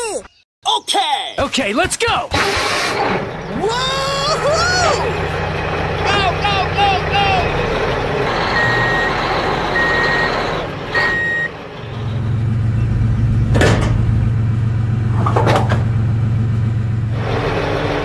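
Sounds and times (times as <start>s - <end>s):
engine humming: 2.7s - 18.0s
reversing alarm beeps: 8.4s - 11.5s.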